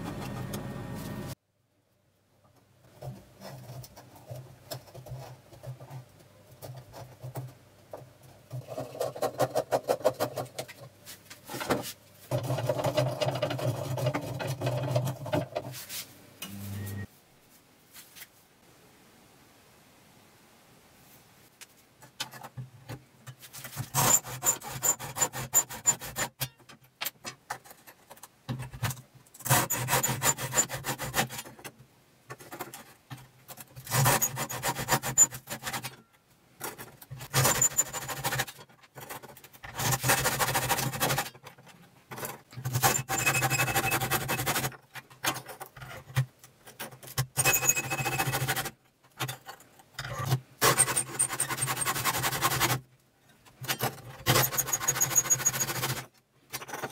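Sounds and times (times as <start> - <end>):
hacksaw blade sawing sandpaper: 23.6 - 26.4, 29.4 - 31.5, 33.8 - 35.9, 37.2 - 38.6, 39.7 - 41.3, 42.7 - 44.7, 47.4 - 48.7, 50.6 - 52.8, 54.2 - 56.1.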